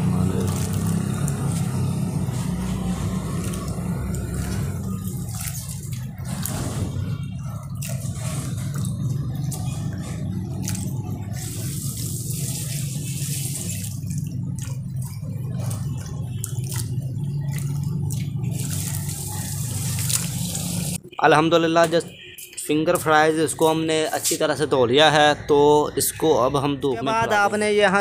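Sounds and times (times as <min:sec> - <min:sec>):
water sloshing in a steel bowl: 0:00.0 - 0:21.0.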